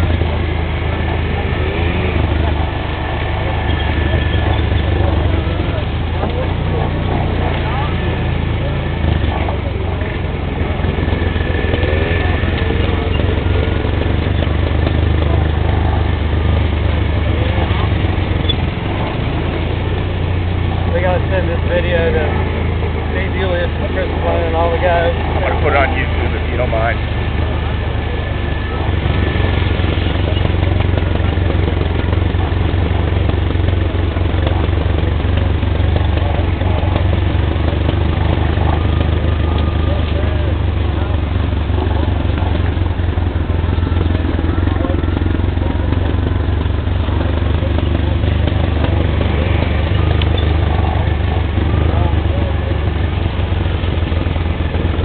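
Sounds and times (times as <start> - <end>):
atv engines running: 0.0 - 55.0.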